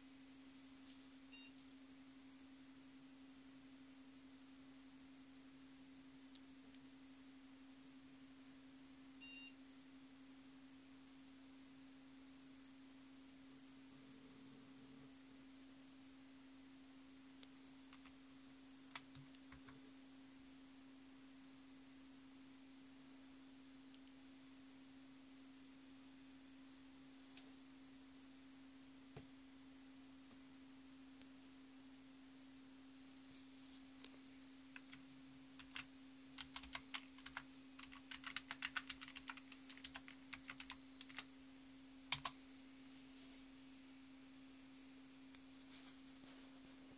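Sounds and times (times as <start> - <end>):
steady low hum: 0.0 - 46.9
rapid keyboard keystrokes: 17.9 - 18.2, 18.9 - 19.8, 34.7 - 35.0, 35.6 - 41.3, 42.1 - 42.4.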